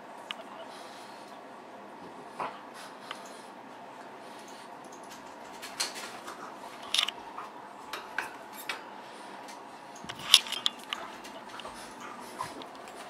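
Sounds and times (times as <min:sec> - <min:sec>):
rats rattling wire cage: 0:04.9 - 0:07.2.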